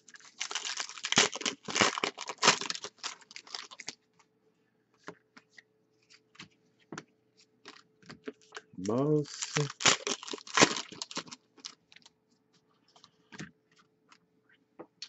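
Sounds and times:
foil wrapper crinkling and tearing: 0.0 - 4.0, 9.2 - 12.1.

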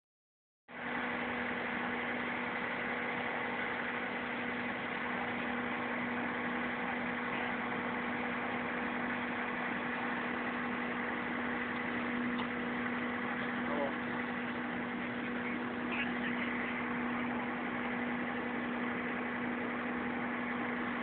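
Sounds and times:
fire engine motors running: 0.7 - 21.0.

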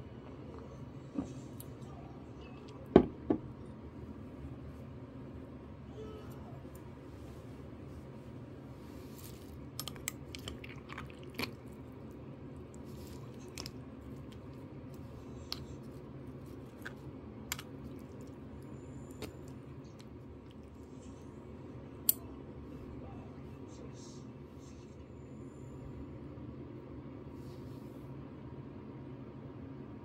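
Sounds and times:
steady low hum: 0.0 - 30.0.

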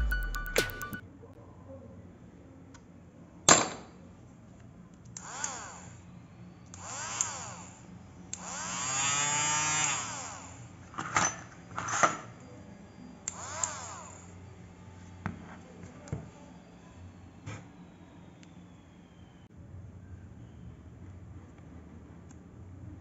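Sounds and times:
electric motor whining: 6.8 - 10.8, 13.3 - 14.7.

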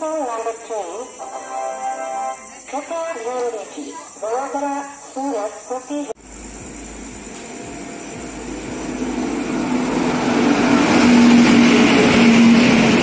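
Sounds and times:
electric locomotive passing: 0.0 - 3.3, 6.2 - 13.0.

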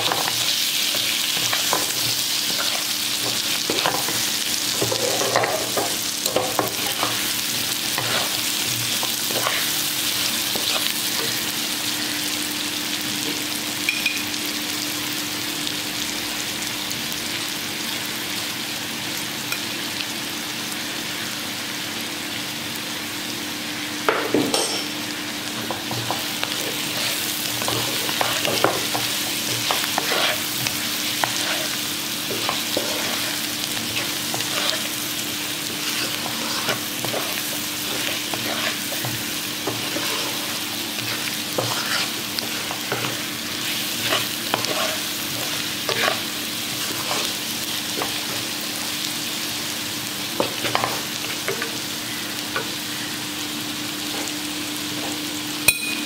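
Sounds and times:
oil sizzling: 0.0 - 17.8, 24.7 - 56.0
wooden spatula scraping a pan: 7.9 - 9.8, 26.1 - 35.0, 35.6 - 47.4.

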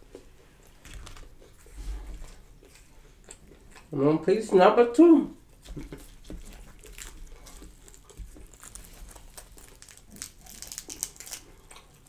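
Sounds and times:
fried coating crackling: 5.6 - 12.0.

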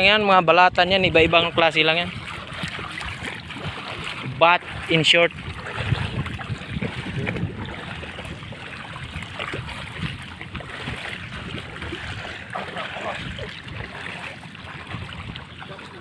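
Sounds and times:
footsteps wading through water: 0.0 - 16.0.

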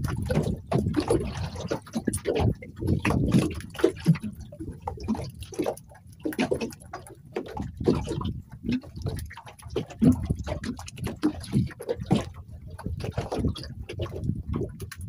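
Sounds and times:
water lapping against boat hull: 0.0 - 15.0.

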